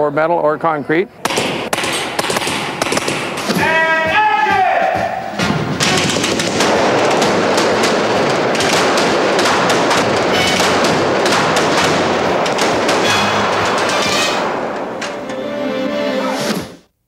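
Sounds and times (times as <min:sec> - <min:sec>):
rapid gunfire: 0:01.2 - 0:03.8, 0:05.3 - 0:15.0
bullet hits and ricochets: 0:01.3 - 0:03.6, 0:05.4 - 0:14.7.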